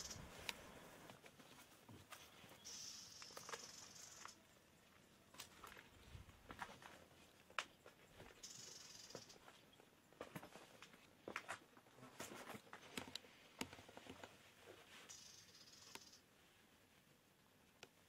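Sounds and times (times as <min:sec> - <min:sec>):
footsteps on gritty ground: 0:05.3 - 0:08.4.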